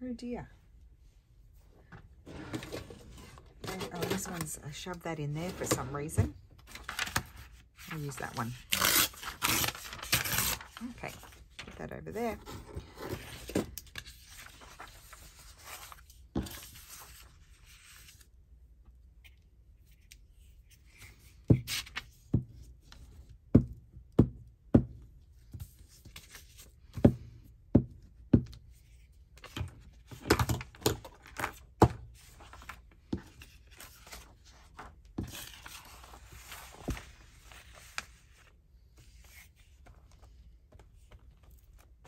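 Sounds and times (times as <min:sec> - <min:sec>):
paper rustling: 0:02.3 - 0:18.3, 0:32.2 - 0:42.0.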